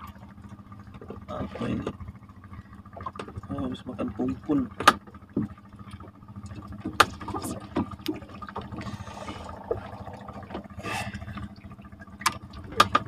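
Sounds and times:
faint steady hum: 0.0s - 12.9s
water splashing and trickling: 0.0s - 13.0s
knocks of fish in boat: 2.9s - 3.5s, 4.5s - 9.8s, 11.3s - 13.0s.

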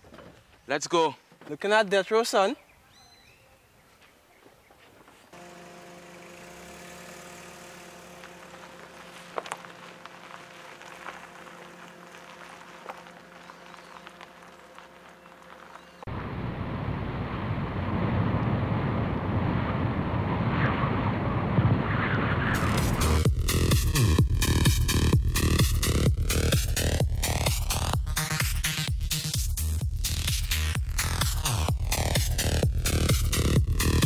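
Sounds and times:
car engine running: 5.4s - 17.8s, 22.4s - 34.0s
loud steady rushing noise: 16.0s - 28.6s.

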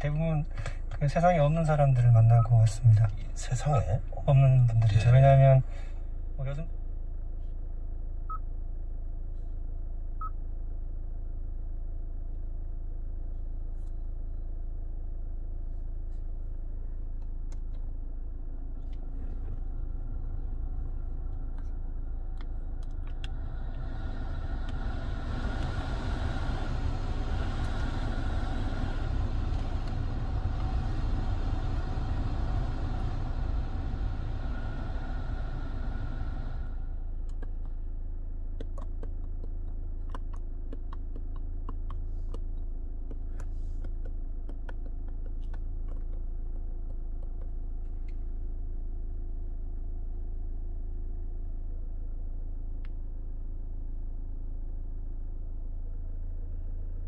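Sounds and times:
idling diesel engine rumble: 14.7s - 49.3s
blower fan air rush: 18.7s - 37.7s.

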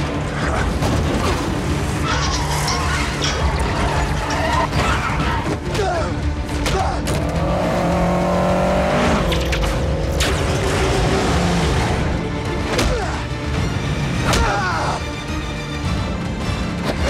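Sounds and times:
film score music: 0.0s - 17.0s
car engine revving: 7.1s - 12.3s.

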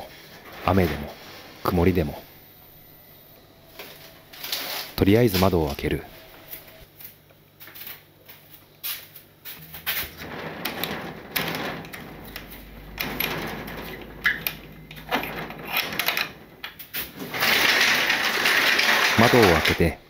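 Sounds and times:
window sashes rattling and scraping: 9.9s - 20.0s
curtains pulled back: 17.0s - 19.9s.

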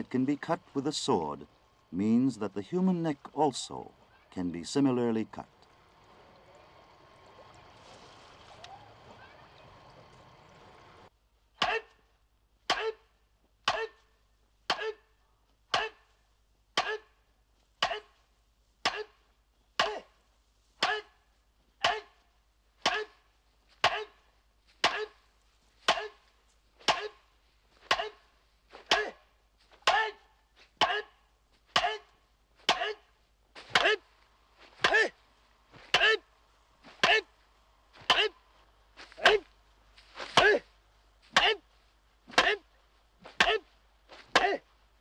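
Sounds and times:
faint background noise: 0.0s - 45.0s
wooden sword knocking bamboo: 18.8s - 19.2s, 19.8s - 20.0s, 20.8s - 21.1s, 21.8s - 22.1s, 22.8s - 23.2s, 24.8s - 25.2s, 25.9s - 26.2s, 26.8s - 27.2s, 27.8s - 28.2s, 28.8s - 29.2s, 30.8s - 31.1s, 31.7s - 33.0s, 41.3s - 41.6s, 44.3s - 44.6s.

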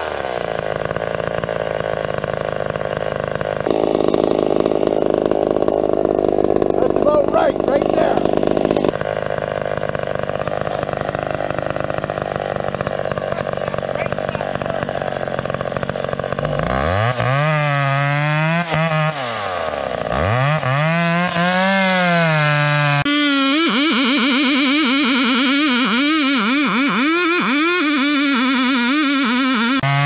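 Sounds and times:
chainsaw cutting wood: 0.0s - 30.0s.

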